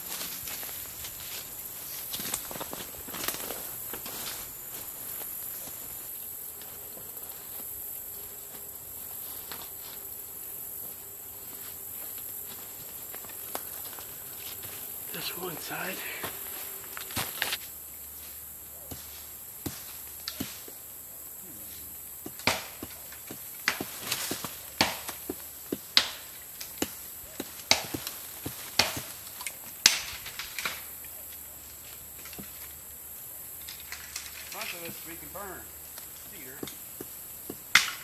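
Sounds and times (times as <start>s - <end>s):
high-pitched insect drone: 0.0s - 18.7s.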